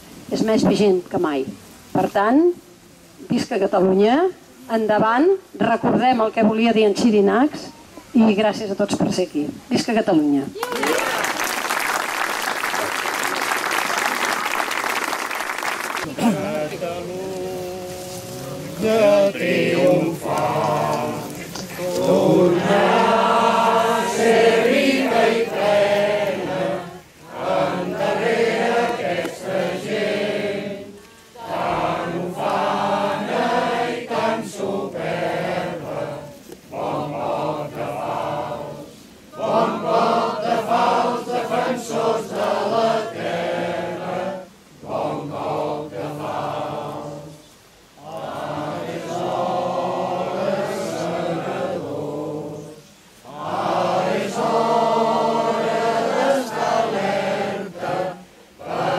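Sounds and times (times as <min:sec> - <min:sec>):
crowd singing: 0:16.0 - 0:58.9.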